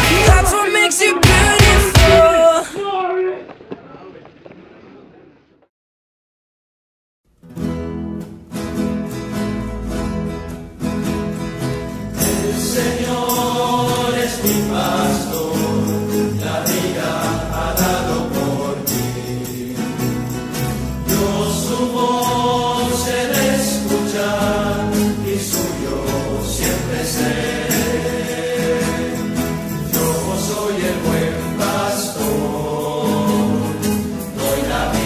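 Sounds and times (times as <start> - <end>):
choir singing over a steady beat: 0.0 - 2.7, 12.2 - 35.0.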